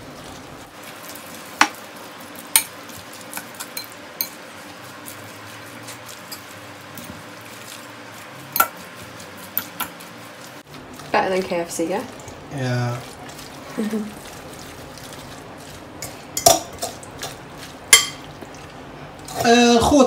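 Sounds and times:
fork stirring coleslaw in bowl: 0.2s - 11.5s, 12.1s - 19.5s
fork clinking on glass bowl: 17.9s - 18.3s.

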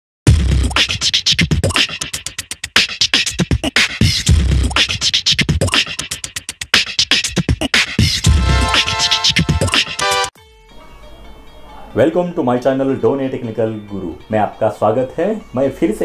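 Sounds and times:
heavy bass hits: 0.3s - 0.8s
fast percussive beat music: 0.3s - 10.4s.

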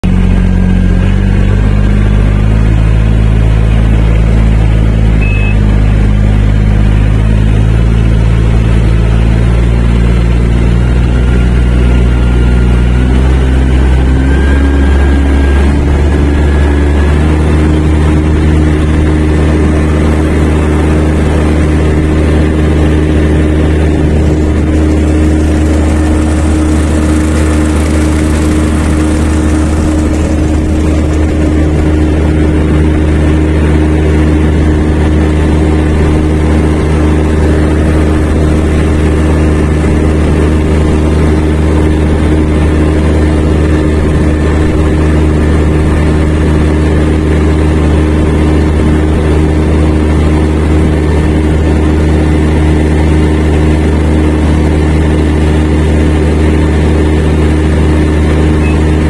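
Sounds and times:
rice transplanter engine running: 0.0s - 59.0s
high beep: 5.2s - 5.7s, 58.6s - 59.0s.

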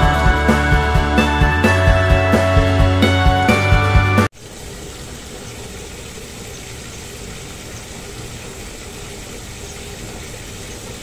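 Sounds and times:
music: 0.0s - 4.3s.

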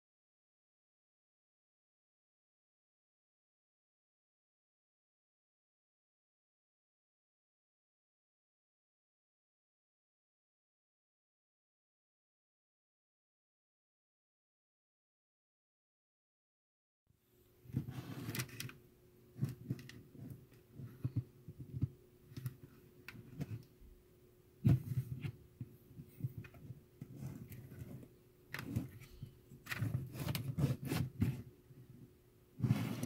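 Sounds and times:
faint steady hum: 17.2s - 33.0s.

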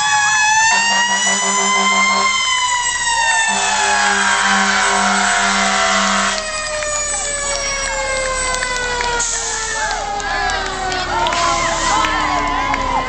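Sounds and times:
fire truck siren wailing: 0.0s - 13.0s
air horn blast: 0.6s - 2.4s, 3.5s - 6.5s.

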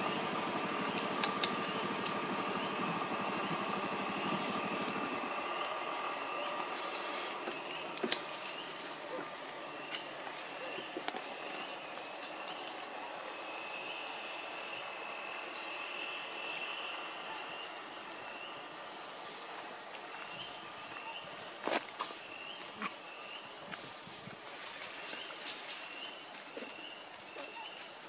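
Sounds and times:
insect drone: 0.0s - 28.0s
wavering insect trill: 0.0s - 28.0s
faint sharp clicks: 1.1s - 2.2s.

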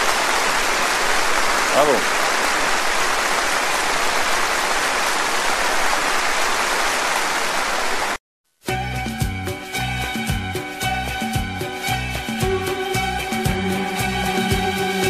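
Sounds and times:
audience applauding: 0.0s - 8.2s
music: 8.6s - 15.0s.

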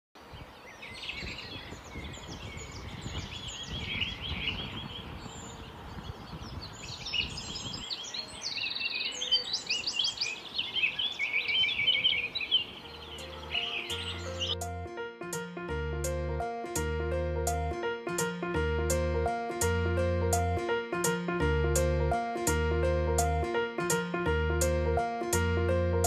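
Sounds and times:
songbirds chirping: 0.2s - 14.7s.

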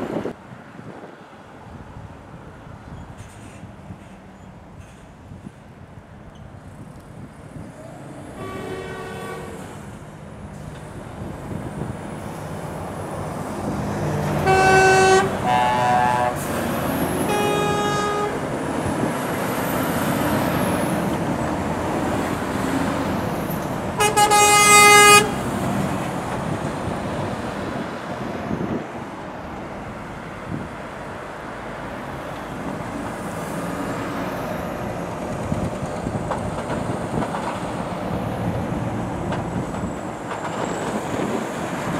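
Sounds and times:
heavy lorries passing: 0.0s - 41.9s
truck horn toots: 8.4s - 9.7s, 14.4s - 16.5s, 17.2s - 18.4s, 24.0s - 25.4s.

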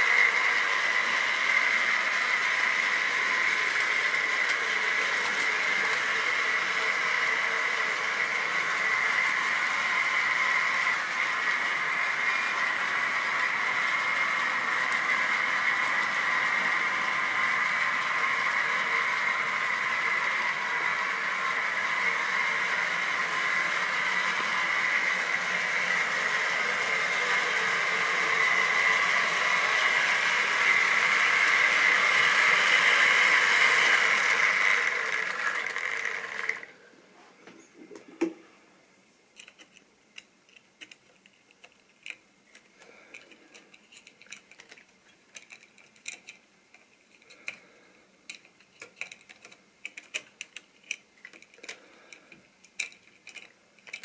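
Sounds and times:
model train running on track: 0.0s - 36.8s.

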